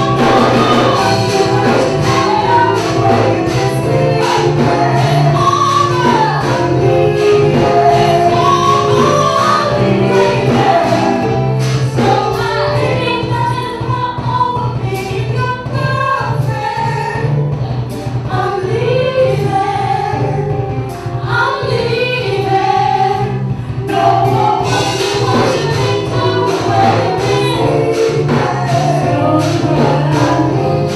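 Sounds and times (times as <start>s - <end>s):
electric guitar: 0.0s - 12.8s
woman singing into a microphone: 0.0s - 17.4s, 18.2s - 30.9s
drums: 0.0s - 30.9s
keyboards: 0.0s - 30.9s.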